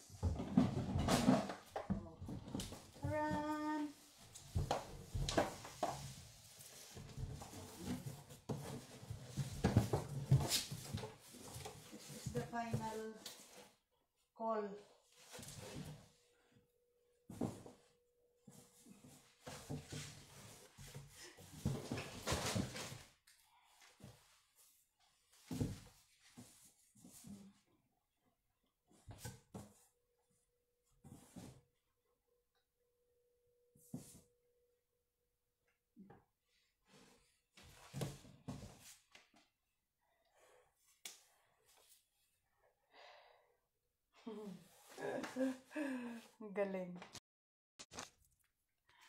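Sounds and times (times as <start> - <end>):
rustling of items being packed: 0.0 - 13.8, 17.3 - 23.2.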